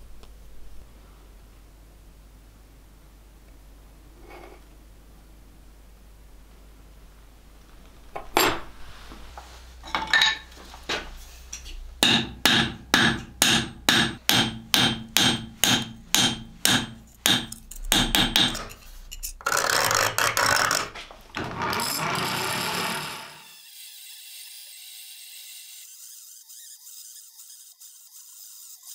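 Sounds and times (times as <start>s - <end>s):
hammer striking steel on anvil: 11.5s - 18.8s
blade grinding on grinding wheel: 18.5s - 26.1s.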